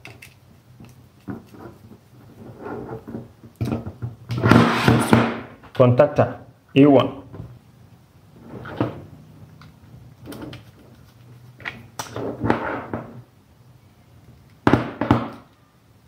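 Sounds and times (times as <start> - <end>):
plastic device scrapes and knocks: 4.4 - 5.4.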